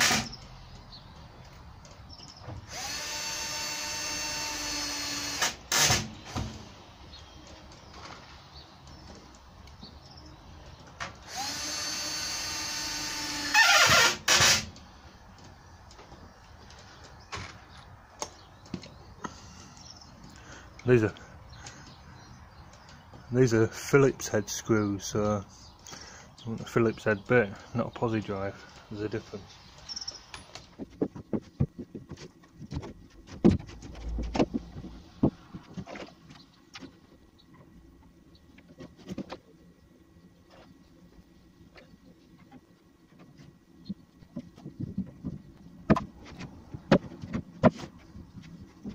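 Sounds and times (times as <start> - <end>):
cordless drill driving screw: 0.0 - 0.3, 2.7 - 6.1, 11.3 - 14.7.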